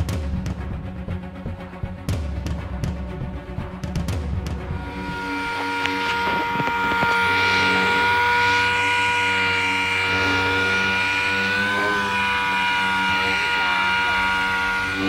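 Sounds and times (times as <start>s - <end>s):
orbital sander whine: 4.7s - 15.0s.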